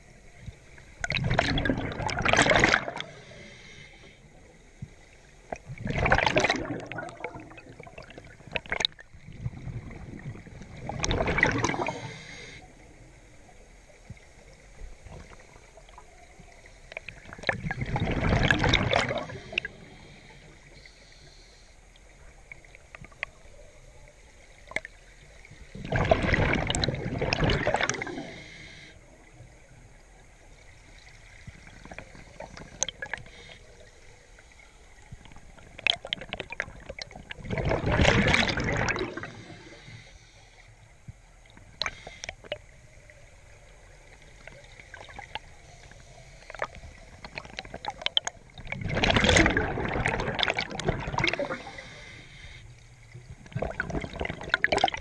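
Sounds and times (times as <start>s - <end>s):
exhaled bubbles from regulator: 1.0s - 3.5s, 5.5s - 12.5s, 17.0s - 20.1s, 25.7s - 28.6s, 35.6s - 40.0s, 46.4s - 52.3s, 53.0s - 55.0s
faint clicks: 21.9s - 23.6s, 40.2s - 42.9s.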